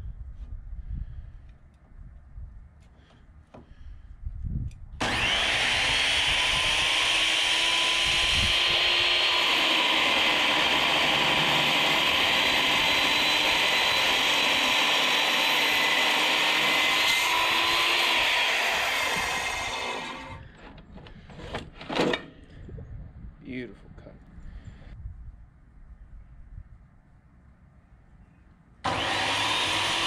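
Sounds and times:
circular saw cutting steel: 0:05.0 - 0:20.4, 0:28.9 - 0:30.0.

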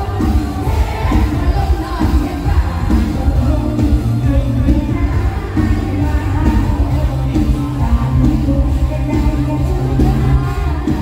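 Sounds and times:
band with heavy bass beat: 0:00.0 - 0:11.0
person singing: 0:00.0 - 0:11.0.

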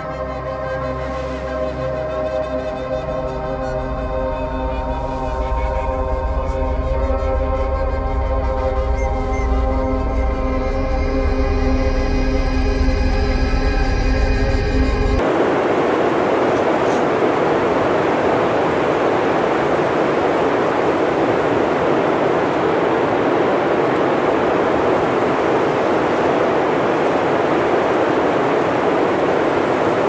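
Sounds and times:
steady rushing noise: 0:15.2 - 0:30.0.

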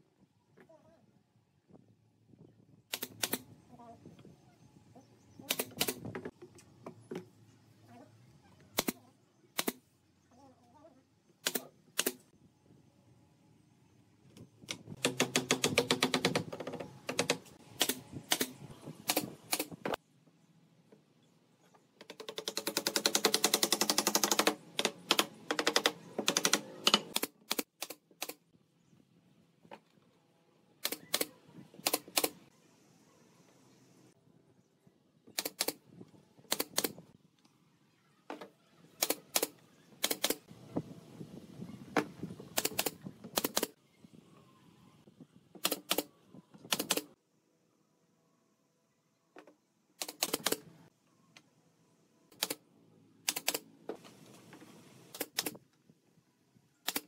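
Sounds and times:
nail gun firing: 0:05.4 - 0:06.2, 0:09.6 - 0:09.8, 0:11.4 - 0:12.2, 0:14.7 - 0:20.0, 0:22.1 - 0:28.4, 0:46.7 - 0:47.1, 0:50.0 - 0:50.6.

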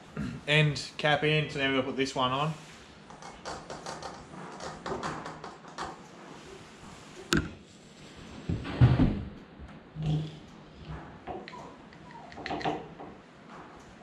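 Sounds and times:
metal knocking: 0:07.4 - 0:07.6.

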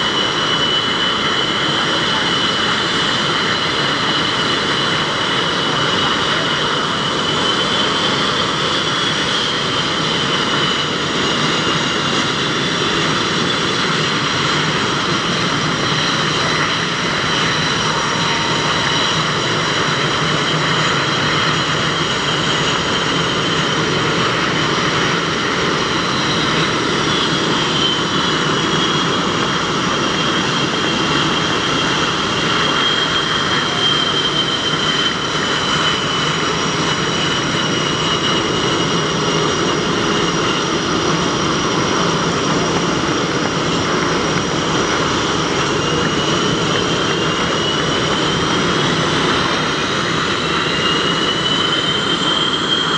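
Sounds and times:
jet engines whining: 0:00.0 - 0:52.9.

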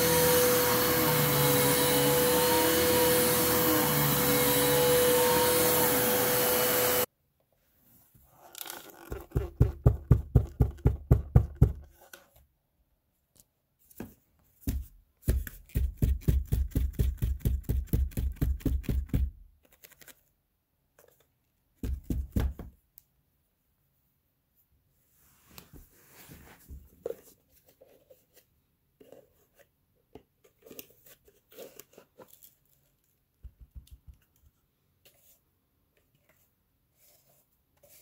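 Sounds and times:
vacuum cleaner running: 0:00.0 - 0:07.1.

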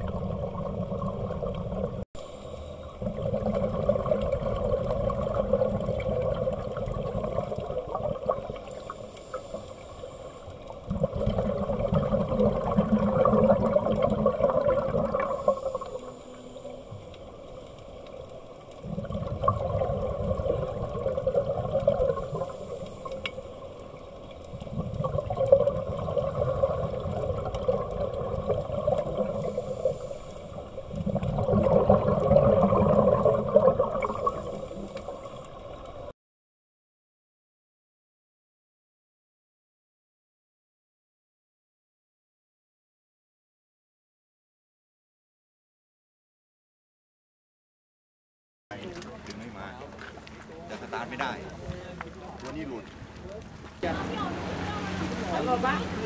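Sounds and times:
underwater breath bubbling: 0:00.0 - 0:36.1.

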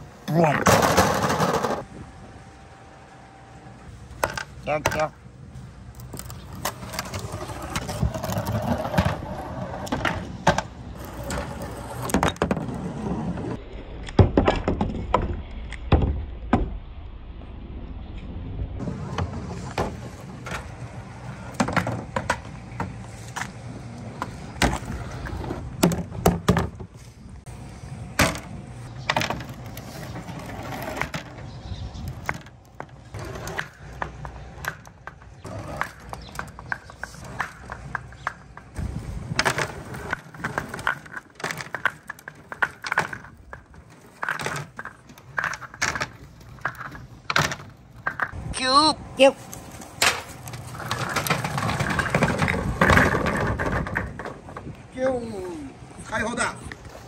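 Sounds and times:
balls rolling down track: 0:00.6 - 0:01.9, 0:32.1 - 0:48.4, 0:50.0 - 0:54.8
balls clacking together: 0:32.1 - 0:48.4, 0:49.9 - 0:54.9.

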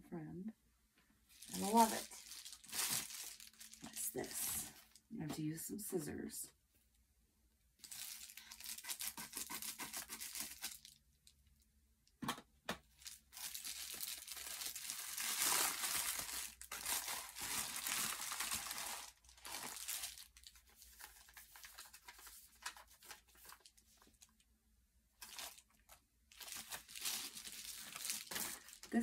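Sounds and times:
tissue paper rustling: 0:01.3 - 0:04.9, 0:07.8 - 0:10.9, 0:13.0 - 0:24.2, 0:25.2 - 0:29.0
packaging crinkling and tearing: 0:01.4 - 0:04.5, 0:07.8 - 0:11.4, 0:12.9 - 0:24.4, 0:25.2 - 0:29.0.

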